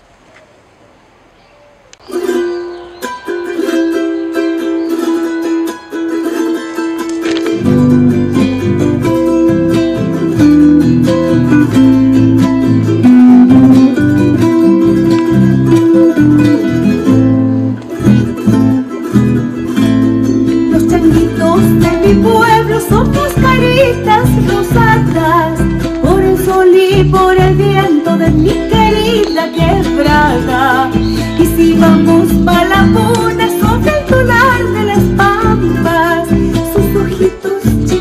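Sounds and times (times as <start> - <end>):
folk music on plucked strings: 2.0 - 38.0
person singing: 20.6 - 38.0.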